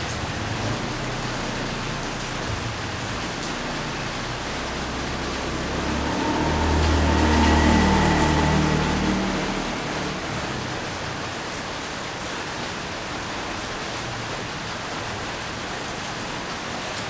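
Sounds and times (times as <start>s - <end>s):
rain falling: 0.0s - 17.0s
passing vehicle engine hum: 0.2s - 12.2s.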